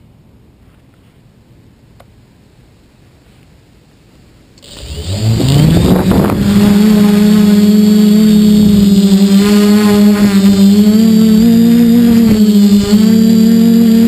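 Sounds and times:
quadcopter motors whining: 0:04.6 - 0:14.0.

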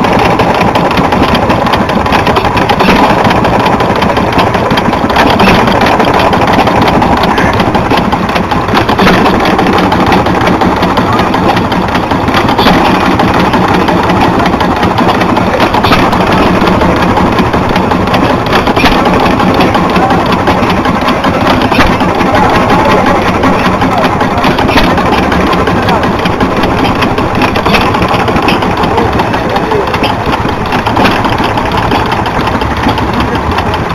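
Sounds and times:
loud background noise: 0:00.0 - 0:33.9
stationary engine firing: 0:00.0 - 0:33.9.

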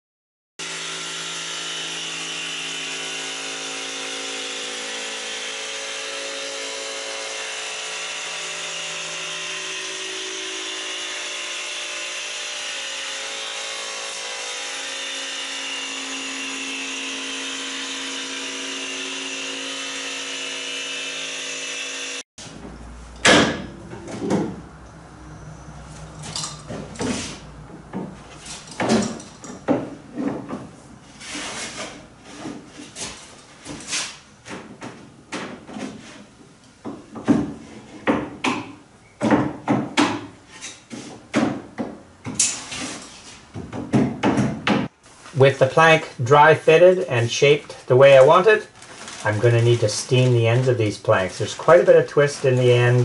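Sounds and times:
jigsaw cutting wood: 0:00.6 - 0:22.2.

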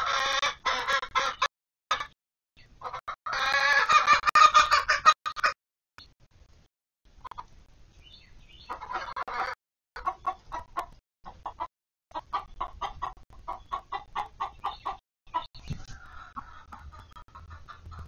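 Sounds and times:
hens clucking: 0:00.0 - 0:02.2, 0:02.8 - 0:05.6, 0:08.6 - 0:18.0.

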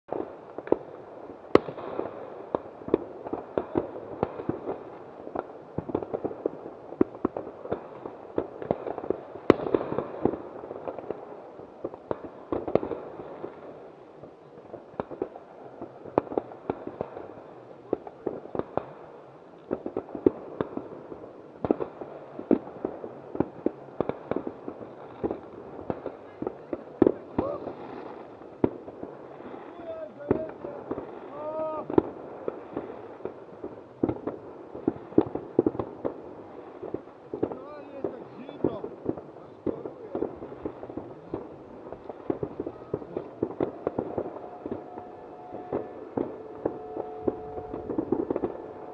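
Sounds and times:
fireworks popping and banging: 0:00.1 - 0:48.9
sharp firecracker cracks: 0:36.8 - 0:48.9.

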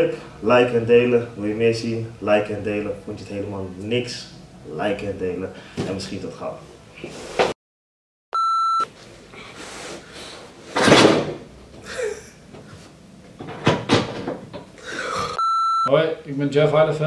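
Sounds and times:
short electronic beep: 0:08.4 - 0:08.9, 0:15.4 - 0:15.9.

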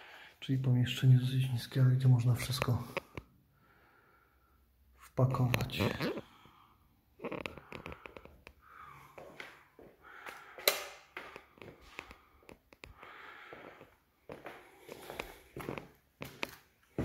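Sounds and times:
camera handling clicks and rustles: 0:10.6 - 0:11.4
footsteps on hard floor: 0:11.2 - 0:17.0.

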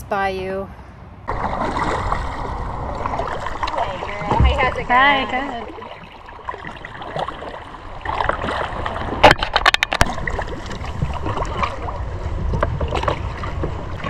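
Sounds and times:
wind rumble on microphone: 0:00.9 - 0:14.0
paddle splashing water: 0:01.3 - 0:14.0.

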